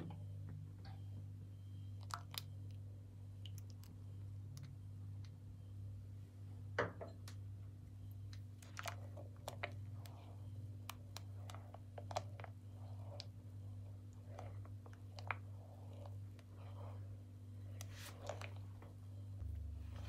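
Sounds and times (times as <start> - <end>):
steady low hum: 0.0 - 20.0
simmering milk clicks and pops: 1.8 - 5.4, 8.1 - 17.0.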